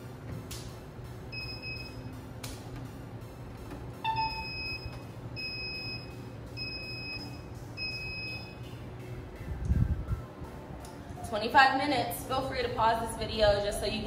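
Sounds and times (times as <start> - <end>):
higher beeps: 1.3 - 2.1, 4.0 - 8.7
low button beep: 4.0 - 8.6.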